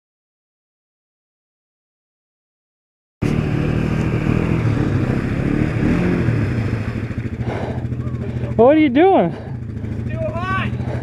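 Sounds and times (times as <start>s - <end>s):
quad bike engines revving: 3.2s - 11.0s.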